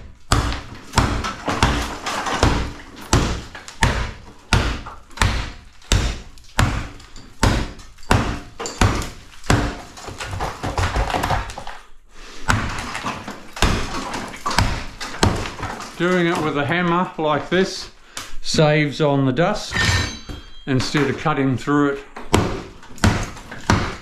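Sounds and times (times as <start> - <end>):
hammer striking wall panel: 0.0 - 11.5, 22.2 - 24.0.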